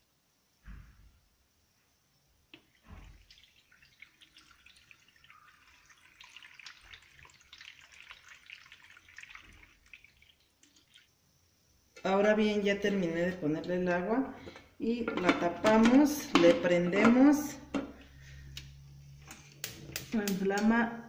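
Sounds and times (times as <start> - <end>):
water pouring into a pot: 2.6 - 11.6.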